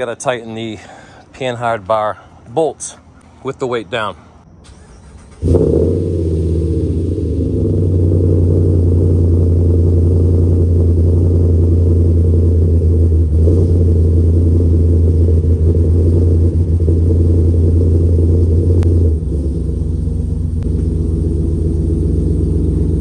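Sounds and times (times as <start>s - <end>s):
pickup truck engine rumbling: 3.0s - 23.0s.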